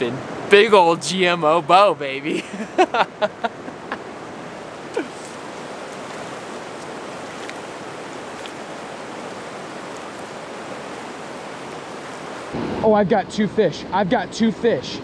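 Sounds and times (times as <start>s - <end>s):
river water rushing over rocks: 4.0s - 12.6s.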